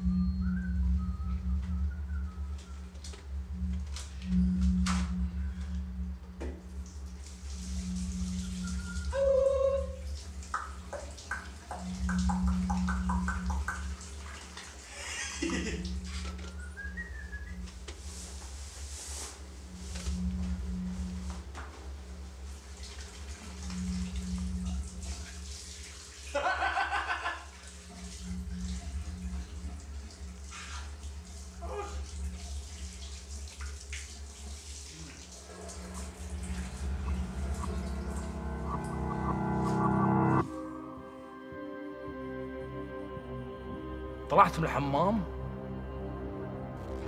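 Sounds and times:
steady low hum: 0.0s - 41.8s
water dripping: 1.3s - 18.1s, 19.9s - 40.4s
water running from a tap: 24.1s - 38.4s
person's voice: 44.3s - 45.3s.

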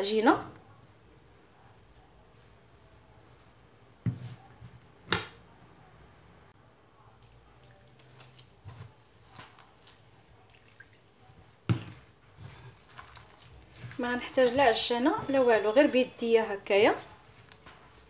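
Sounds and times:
hand kneading wet dough: 0.1s - 5.1s, 6.9s - 18.0s.

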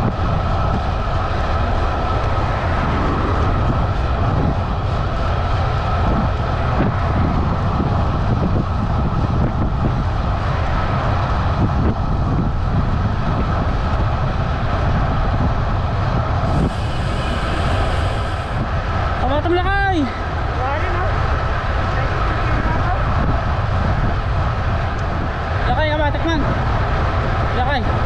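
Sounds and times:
tyres humming on asphalt: 0.0s - 28.0s
wind rushing over microphone: 0.0s - 28.0s
bright hiss: 16.4s - 18.8s.

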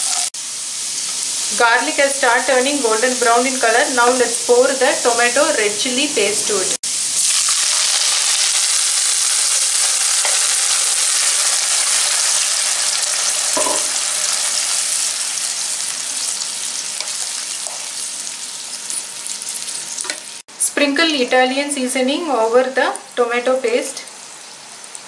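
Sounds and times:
paste sizzling in hot oil: 6.8s - 20.4s.

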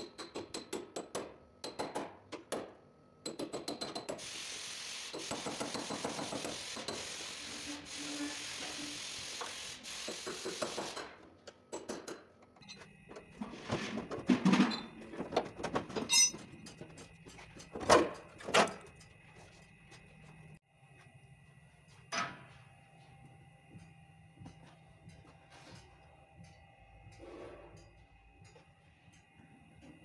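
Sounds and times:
hammer and chisel knocking metal: 0.0s - 4.2s, 10.2s - 12.4s.

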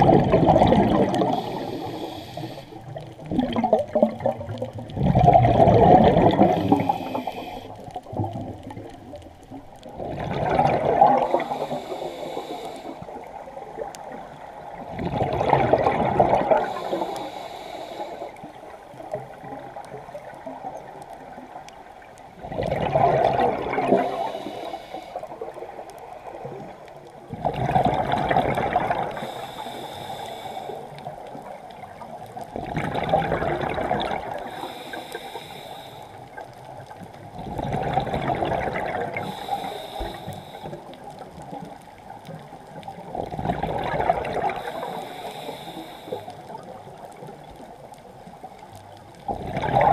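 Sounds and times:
underwater bubbles bursting out: 0.0s - 11.7s, 13.2s - 16.9s, 22.4s - 24.4s, 27.3s - 29.3s, 31.5s - 34.6s, 36.7s - 39.5s, 42.4s - 44.8s, 49.1s - 49.9s
regulator hiss: 1.2s - 3.0s, 6.3s - 7.8s, 11.3s - 13.3s, 16.6s - 18.5s, 24.0s - 25.4s, 29.1s - 31.0s, 34.4s - 36.4s, 39.2s - 40.9s, 44.6s - 46.5s.

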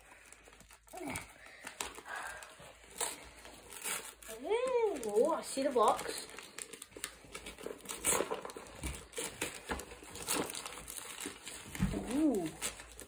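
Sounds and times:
wrapping paper crinkling and tearing: 0.0s - 13.0s.

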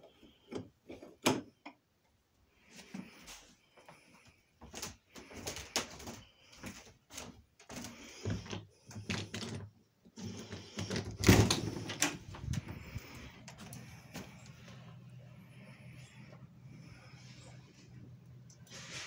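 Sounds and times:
footsteps: 11.8s - 15.0s.

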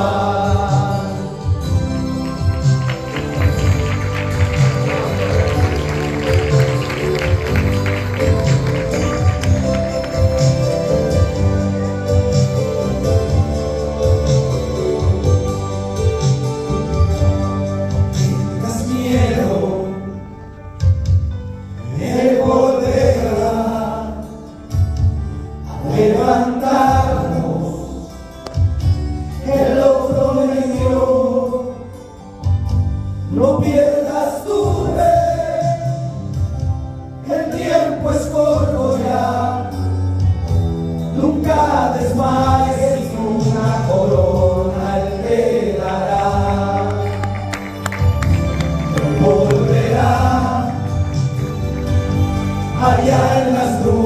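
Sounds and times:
male group singing: 0.0s - 1.8s, 18.6s - 20.0s, 21.8s - 24.4s, 25.7s - 28.2s, 29.4s - 31.8s, 33.3s - 36.4s, 37.2s - 40.0s, 41.2s - 47.4s, 48.9s - 51.3s, 52.7s - 54.0s
instrumental accompaniment with bass: 0.0s - 54.0s.

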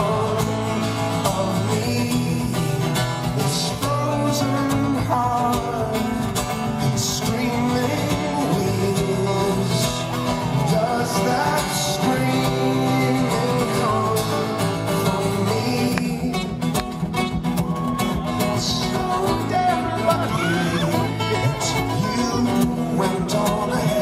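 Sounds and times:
acoustic guitars playing: 0.0s - 24.0s.

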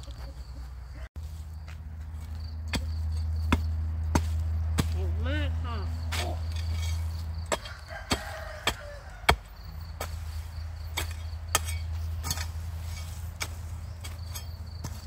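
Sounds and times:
hoe chopping into hard soil: 2.7s - 5.1s, 6.1s - 15.0s.

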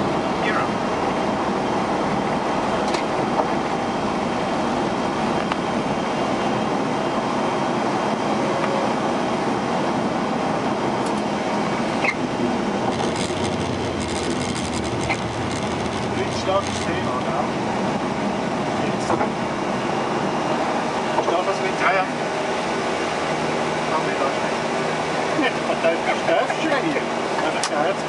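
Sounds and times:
aircraft engine noise: 0.0s - 28.0s
airflow over cockpit: 0.0s - 28.0s
crackles: 12.9s - 17.0s.

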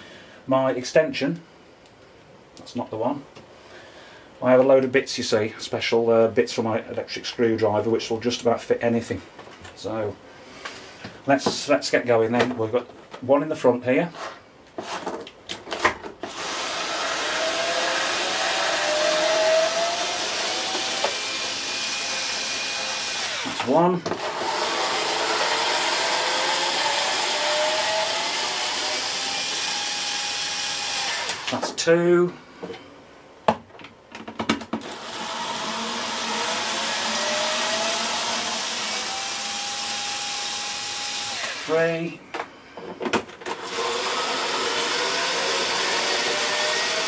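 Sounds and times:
electric screwdriver motor whine: 16.3s - 23.6s, 24.2s - 31.5s, 34.8s - 41.8s.

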